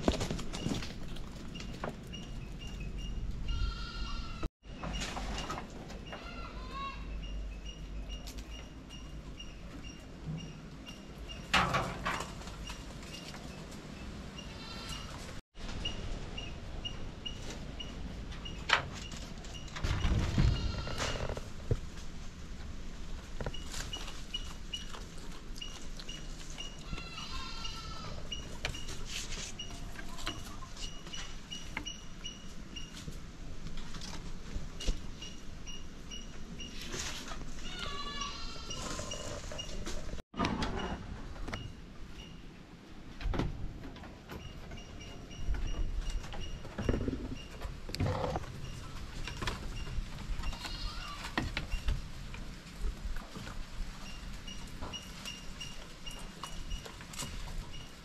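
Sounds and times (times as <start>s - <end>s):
goats bleating: 3.5s - 4.5s, 26.8s - 28.2s, 37.6s - 39.2s, 50.5s - 51.4s.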